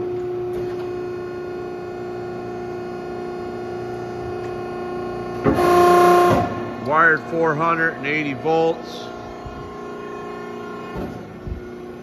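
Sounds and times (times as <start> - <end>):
hydraulic press humming and whining: 0.0 - 12.0.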